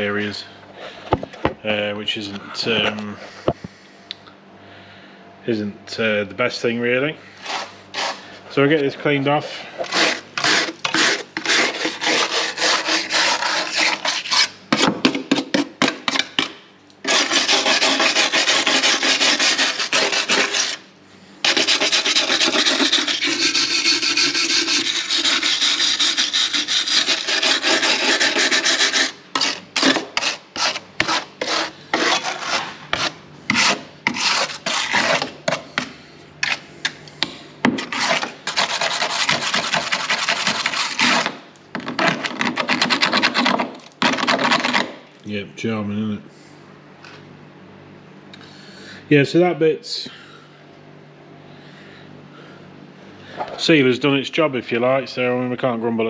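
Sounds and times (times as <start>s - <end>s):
scraper scraping dirt off metal: 9.4s - 14.9s, 17.0s - 20.8s, 21.4s - 36.6s, 37.8s - 44.9s.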